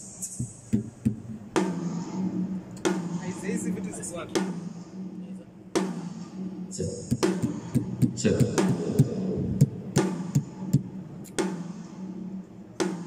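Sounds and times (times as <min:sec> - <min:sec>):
steady low tone: 0:02.1 - 0:11.2
drum hits: 0:02.8 - 0:05.2, 0:05.8 - 0:11.8.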